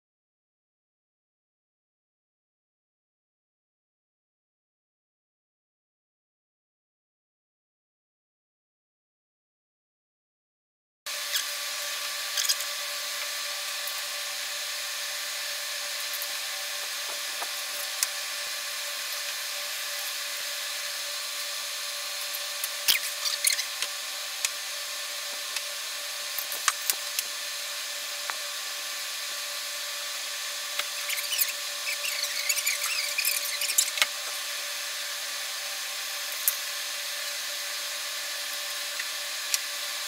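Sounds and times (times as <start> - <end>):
pencil scratching strokes: 31.0 - 34.0.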